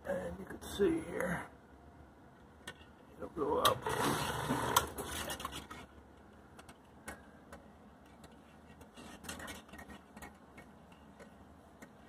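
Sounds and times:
sump pump motor: 0:03.6 - 0:05.8.

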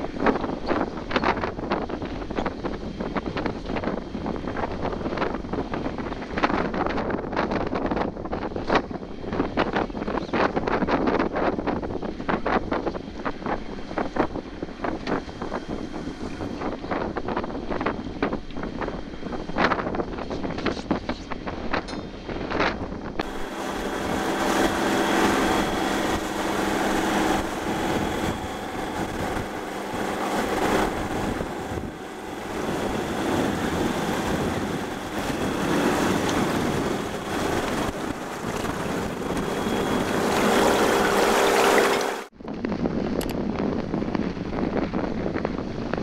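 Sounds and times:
wind buffeting microphone: 0:00.0 - 0:46.0
boat engine drone: 0:23.2 - 0:42.3
water rushing past hull: 0:23.2 - 0:42.3.

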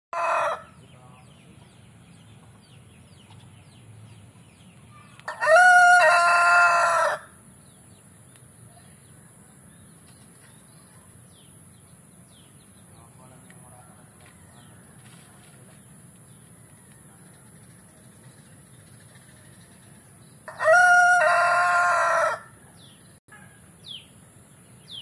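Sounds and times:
rooster crowing: 0:00.1 - 0:00.8, 0:05.2 - 0:07.4, 0:20.5 - 0:22.6.

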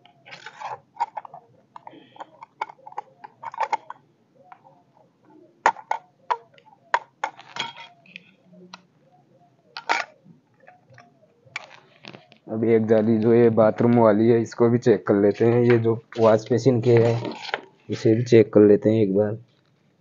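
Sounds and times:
metal grating clinking and scraping: 0:07.2 - 0:08.2, 0:15.4 - 0:18.0.

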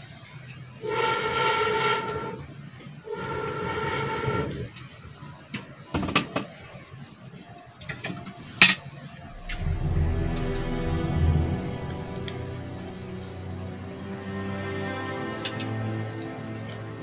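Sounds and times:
background music: 0:09.3 - 0:17.0.

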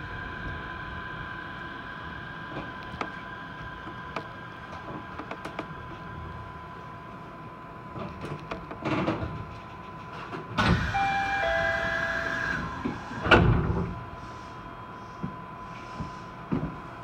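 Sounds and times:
sliding doors shutting thud: 0:10.6 - 0:11.2, 0:11.8 - 0:13.9
two-note electronic chime: 0:10.9 - 0:12.4.

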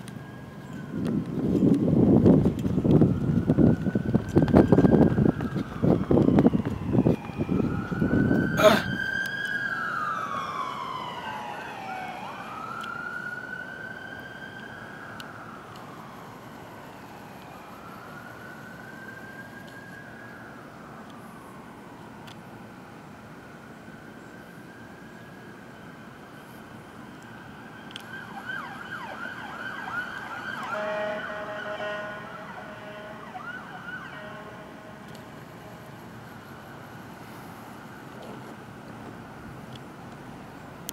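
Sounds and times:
police siren wailing: 0:00.0 - 0:38.9
air horn blast: 0:30.7 - 0:33.4, 0:34.1 - 0:35.0.

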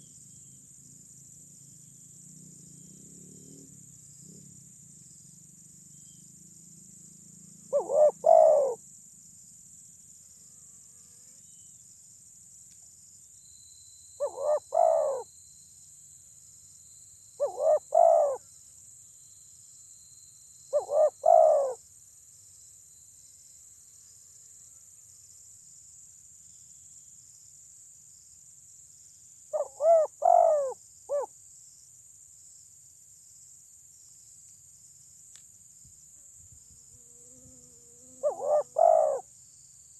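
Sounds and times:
high insect hum: 0:00.0 - 0:39.9
dove cooing: 0:07.7 - 0:08.8, 0:14.2 - 0:15.2, 0:17.4 - 0:18.4, 0:20.8 - 0:21.8, 0:29.6 - 0:31.3, 0:38.2 - 0:39.3.

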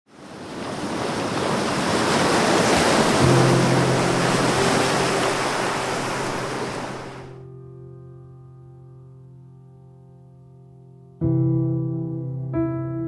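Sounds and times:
rushing surf-like wash: 0:00.1 - 0:07.4.

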